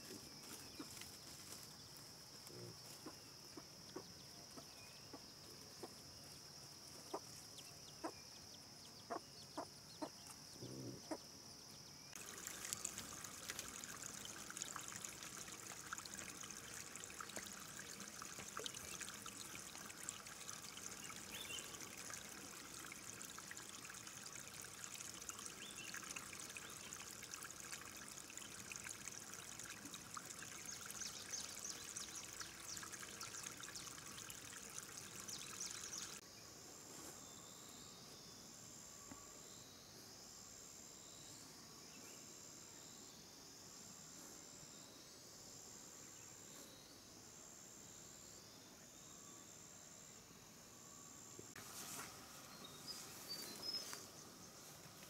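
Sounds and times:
steady high insect-like tone: 0:00.0 - 0:55.0
water trickling: 0:12.2 - 0:36.2.

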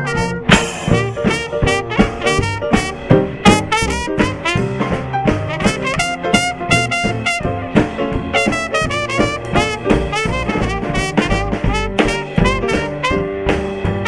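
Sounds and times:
jazz band with brass lead: 0:00.0 - 0:14.0.

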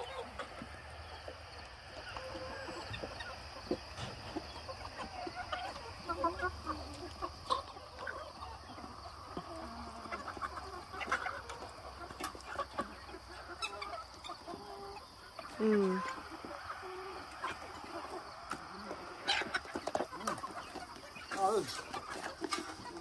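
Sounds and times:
chickens clucking and chirping: 0:00.0 - 0:23.0.

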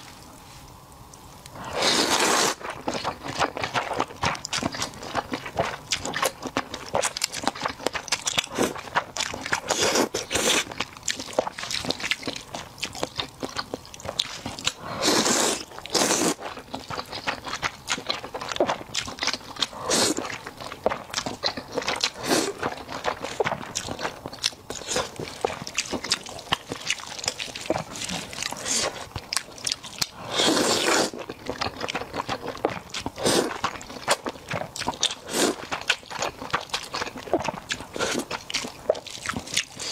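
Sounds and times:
slurping noodles: 0:01.6 - 0:04.0, 0:08.4 - 0:10.8, 0:14.3 - 0:17.2, 0:19.7 - 0:21.0, 0:21.8 - 0:23.5, 0:24.7 - 0:31.2, 0:33.0 - 0:35.8, 0:37.9 - 0:38.4
wet chewing and mouth smacking: 0:02.2 - 0:39.9.

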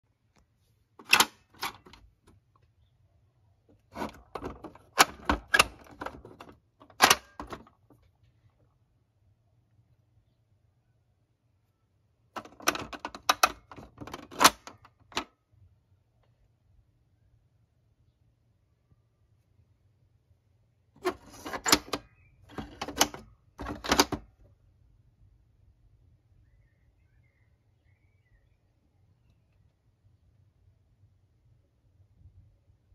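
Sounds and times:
plastic toy doors clattering: 0:01.0 - 0:02.4, 0:03.8 - 0:08.0, 0:12.4 - 0:15.3, 0:21.0 - 0:24.4
sharp plastic clicks and clacks: 0:12.4 - 0:15.4.

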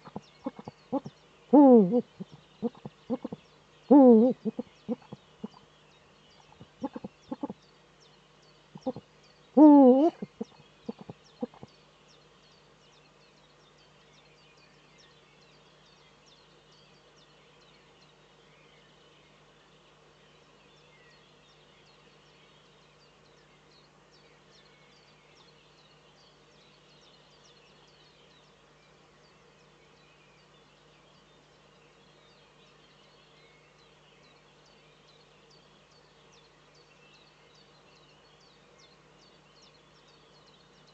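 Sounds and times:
owl hooting: 0:00.0 - 0:05.6, 0:06.5 - 0:07.6, 0:08.8 - 0:09.0, 0:09.6 - 0:11.7
faint steady background: 0:00.0 - 0:40.9.

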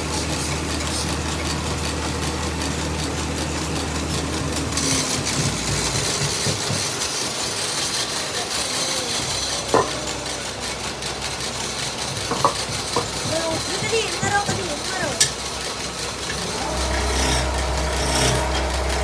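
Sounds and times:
lathe running with high hiss: 0:00.0 - 0:19.0
wood lathe humming: 0:00.0 - 0:19.0.

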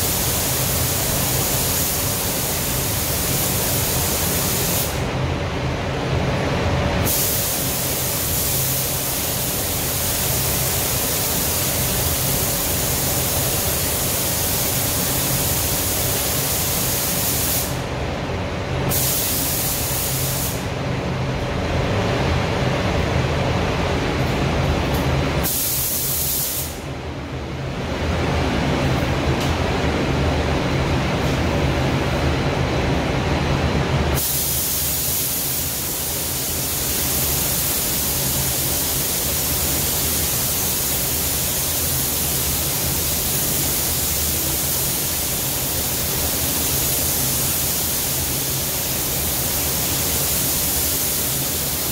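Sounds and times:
paint spray gun hissing: 0:00.0 - 0:05.0, 0:07.1 - 0:17.8, 0:18.9 - 0:20.7, 0:25.4 - 0:26.8, 0:34.2 - 0:51.9
air-handling fans droning: 0:00.0 - 0:51.9.

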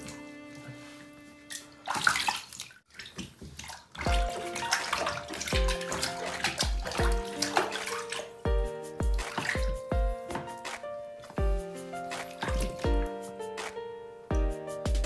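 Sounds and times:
water splashing in plastic tub: 0:01.6 - 0:11.4, 0:12.1 - 0:13.1
background music with low beat: 0:04.1 - 0:15.0.

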